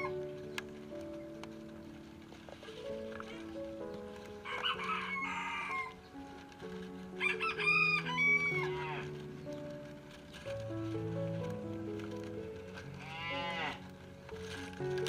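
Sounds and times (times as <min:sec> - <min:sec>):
background music: 0:00.0 - 0:15.0
rooster crowing: 0:04.4 - 0:06.1, 0:07.2 - 0:09.1.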